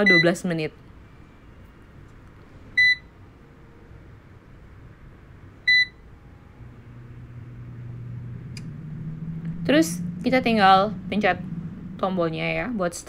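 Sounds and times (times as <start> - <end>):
fan humming: 4.2 - 13.0.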